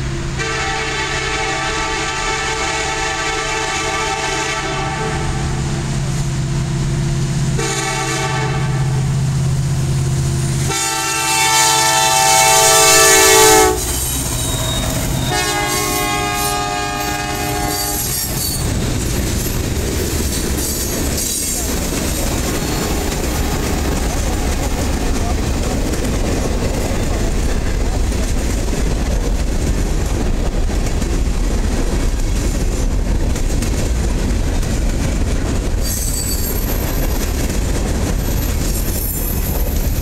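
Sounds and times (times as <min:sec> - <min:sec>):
diesel locomotive rumble: 0:00.0 - 0:40.0
train air horn: 0:00.4 - 0:05.6, 0:07.6 - 0:09.1, 0:10.7 - 0:18.4
freight cars clattering: 0:17.8 - 0:30.1.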